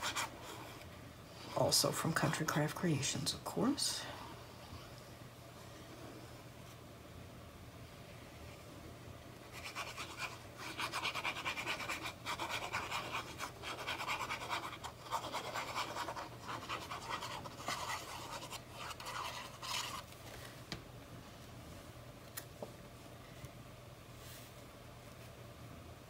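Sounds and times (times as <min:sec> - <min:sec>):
tool scratching card stock: 0:09.6 - 0:20.0.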